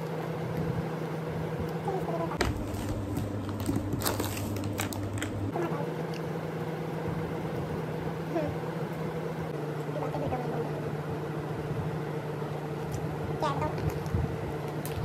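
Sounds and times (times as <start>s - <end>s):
steady low hum: 0.0s - 15.0s
plastic snack sachet crinkling: 2.6s - 5.3s.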